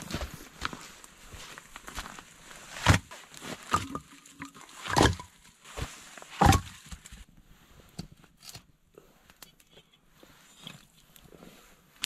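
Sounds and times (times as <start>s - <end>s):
packed snow crunching: 0.0s - 7.2s.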